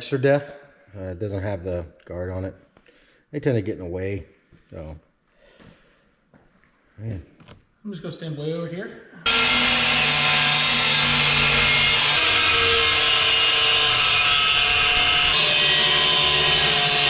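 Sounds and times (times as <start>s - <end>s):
angle grinder cutting steel: 9.2s - 17.0s.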